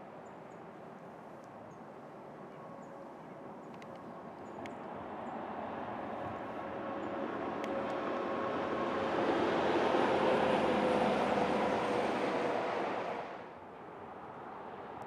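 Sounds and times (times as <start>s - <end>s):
distant vehicle drone: 4.6s - 13.8s.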